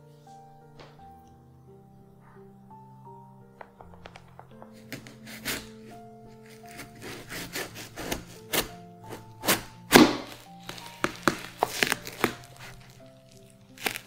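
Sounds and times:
soft background music: 0.0 - 14.0
knife cracking watermelon rind: 4.7 - 14.0.

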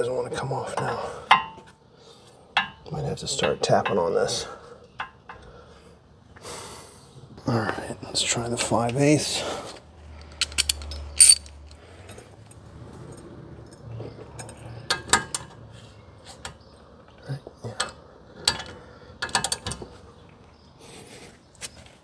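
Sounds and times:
wrench clinking on metal fitting: 10.3 - 11.6.

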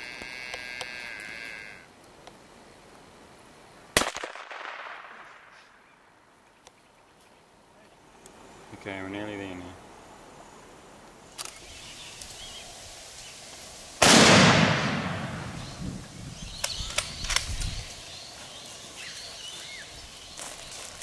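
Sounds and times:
sharp clicks: 11.3 - 12.3, 16.5 - 17.8
gunshot with echo: 14.0 - 15.6.

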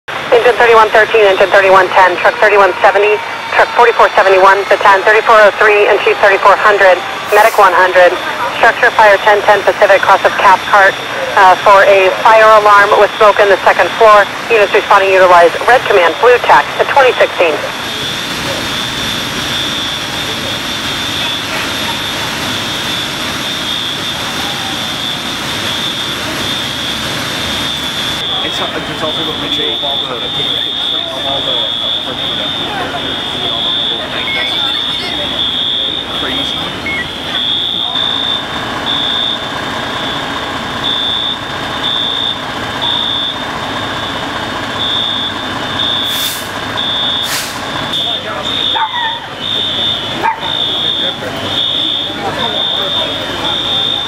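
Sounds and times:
diesel engine rumble: 0.1 - 54.0
fire alarm beeping: 0.3 - 54.0
steady high tone: 0.4 - 44.2
short hiss: 47.3 - 47.7.

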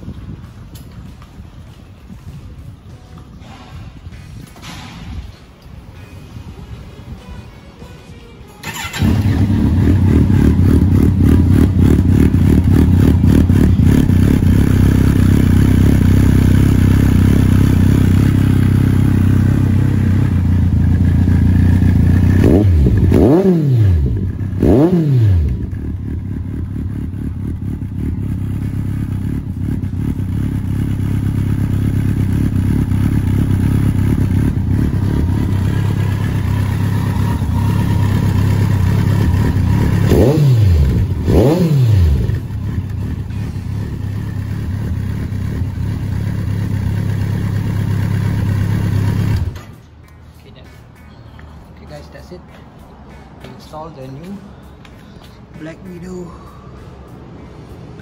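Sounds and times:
engine throttle blips: 8.6 - 49.7
motorcycle engine idling: 8.6 - 49.7.

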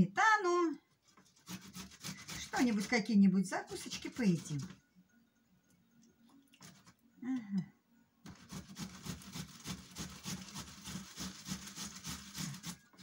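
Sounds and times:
tomato grating on metal grater: 1.2 - 4.8, 8.3 - 13.0.

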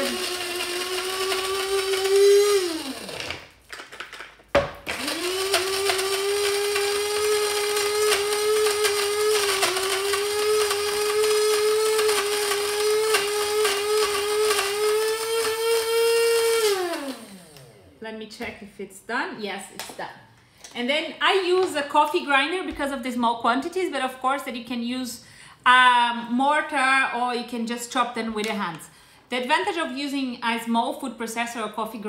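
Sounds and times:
coffee grinder whirring: 0.0 - 17.9.

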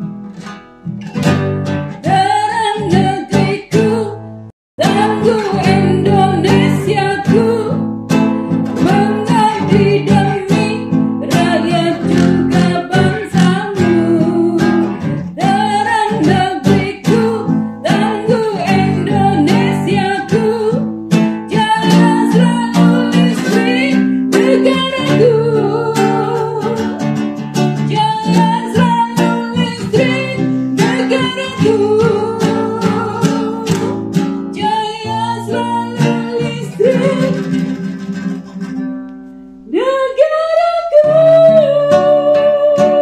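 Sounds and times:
guitar-led accompaniment: 0.0 - 39.9, 40.8 - 43.0
woman singing: 2.0 - 7.9, 8.5 - 27.2, 27.8 - 37.8, 39.6 - 43.0.

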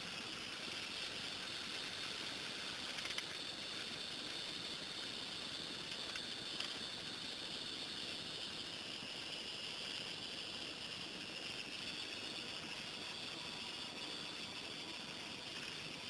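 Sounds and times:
steady background hiss: 0.0 - 16.0.

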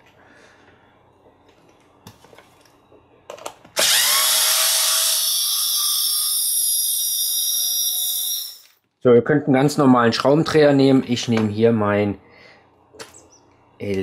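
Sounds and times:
electric screwdriver running: 3.8 - 8.6.

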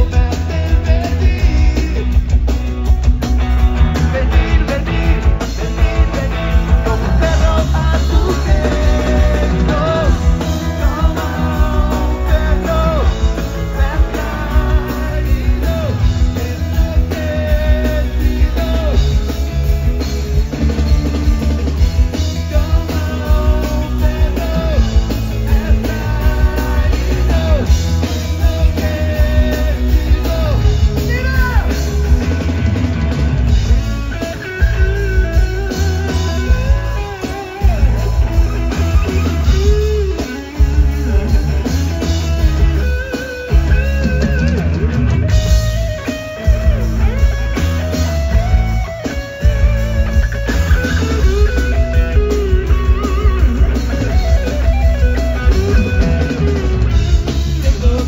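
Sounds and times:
person singing: 0.0 - 2.4, 3.8 - 19.4, 22.3 - 31.8, 57.5 - 58.0
bass guitar: 0.0 - 58.0
drum kit: 0.0 - 58.0
electric guitar: 0.0 - 58.0.

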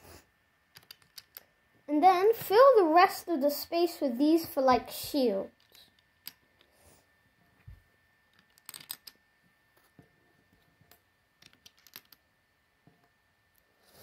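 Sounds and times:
plastic lego pieces clicking: 0.7 - 1.4, 8.3 - 9.2, 11.4 - 12.2.

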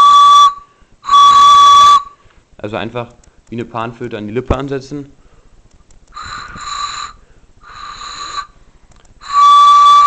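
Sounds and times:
clear steady whistle: 0.0 - 2.4, 6.1 - 10.0
airy blows across cartridge: 0.0 - 2.6, 5.4 - 10.0.

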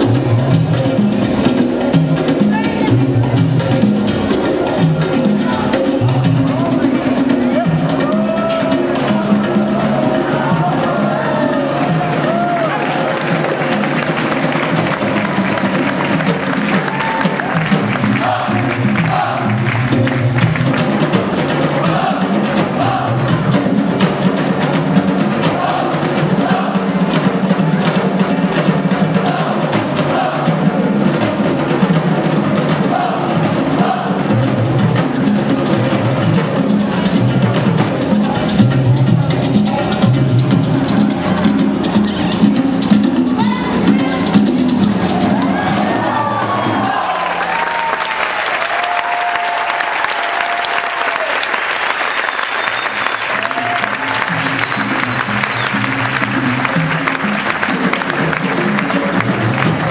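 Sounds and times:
drums in fast rhythm: 0.0 - 59.9
music: 0.0 - 59.9
crowd cheering: 6.5 - 31.6, 32.2 - 34.5, 43.3 - 59.9
audience clapping: 11.7 - 22.7, 45.4 - 59.9.

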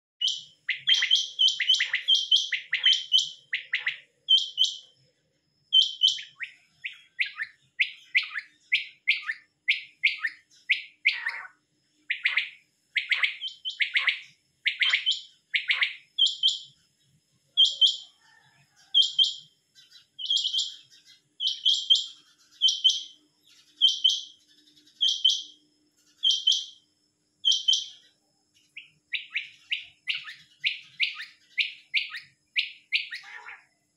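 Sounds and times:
quails calling: 0.2 - 4.8, 5.8 - 11.5, 29.1 - 33.7.

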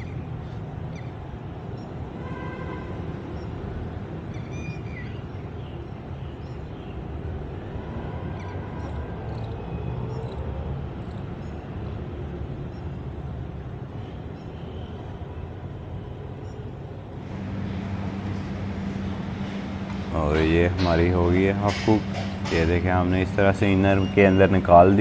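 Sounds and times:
low outdoor rumble: 17.2 - 25.0.

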